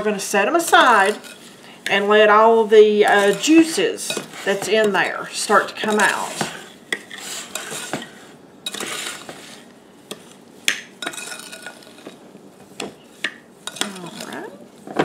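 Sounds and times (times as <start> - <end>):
spoon scraping in a bowl: 0.6 - 10.4, 11.0 - 12.2, 13.0 - 14.6.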